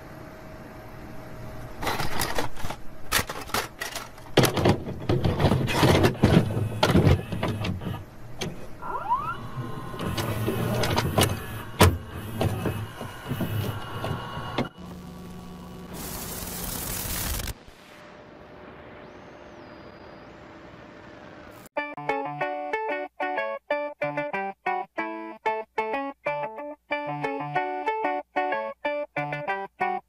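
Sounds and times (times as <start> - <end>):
clicks and knocks of tape loading: 1.8 - 8.6, 10.0 - 14.7
small motors whirring: 8.8 - 14.7.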